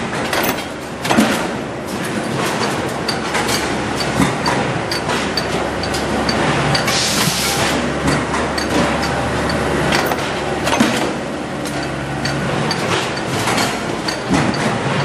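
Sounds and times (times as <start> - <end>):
forming press humming: 0.0 - 15.0
sharp metal knocks: 7.6 - 15.0.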